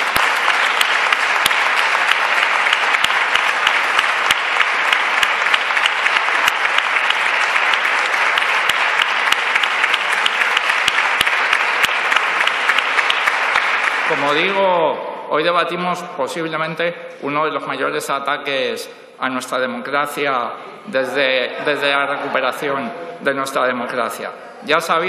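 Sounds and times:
sharp single claps: 0:00.0 - 0:14.2
applause: 0:00.0 - 0:14.8.

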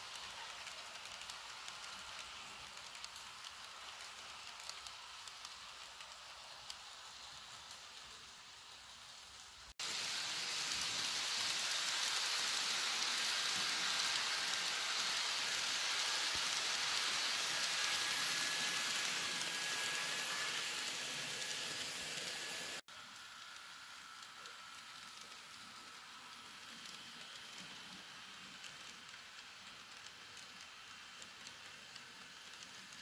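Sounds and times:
model train wheels rattling on rail: 0:00.0 - 0:22.8.

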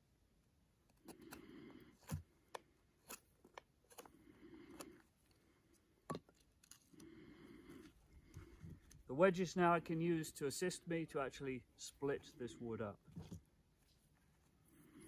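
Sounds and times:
clicks of wood and blade: 0:00.9 - 0:05.0
knife scraping wood: 0:00.9 - 0:05.3.

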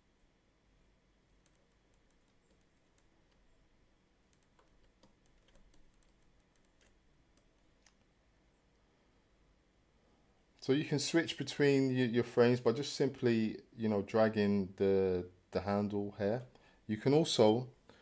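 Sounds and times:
computer keyboard clicks: 0:01.4 - 0:03.4, 0:04.3 - 0:08.1.

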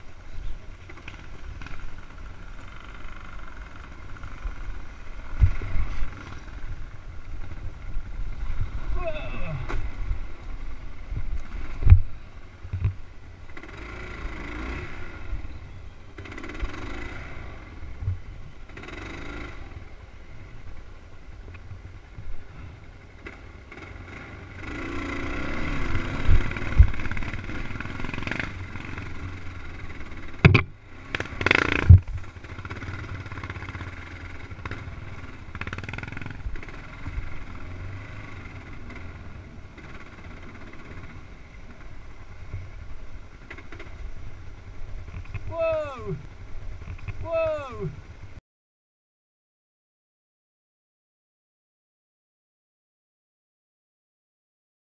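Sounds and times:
dirt bike engine revving: 0:13.5 - 0:15.4, 0:16.2 - 0:17.9, 0:18.7 - 0:20.0, 0:23.2 - 0:41.4
sharp knocks: 0:30.4 - 0:30.7.

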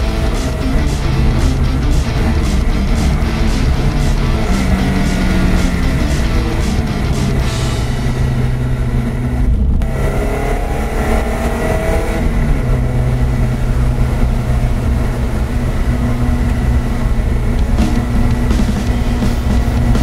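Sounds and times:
car engine accelerating: 0:00.0 - 0:20.0.

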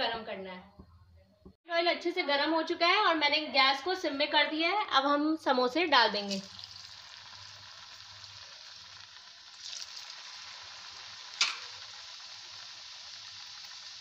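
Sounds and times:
hot oil sizzling: 0:06.1 - 0:14.0.

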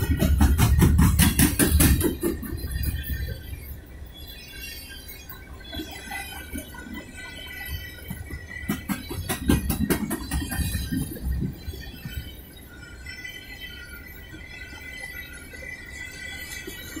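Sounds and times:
train wheels clattering: 0:00.0 - 0:03.6, 0:07.6 - 0:12.1.

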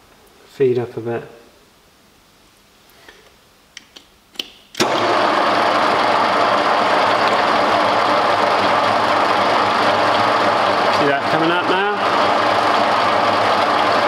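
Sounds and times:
milling machine motor running: 0:04.8 - 0:14.0.

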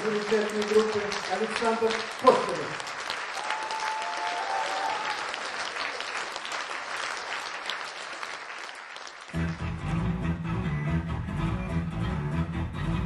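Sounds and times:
audience applauding: 0:00.0 - 0:09.8
band playing: 0:09.3 - 0:13.0.

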